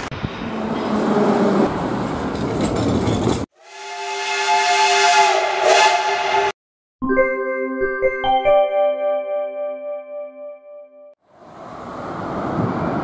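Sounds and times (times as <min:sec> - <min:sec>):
steam locomotive whistle: 0:03.6 - 0:06.6.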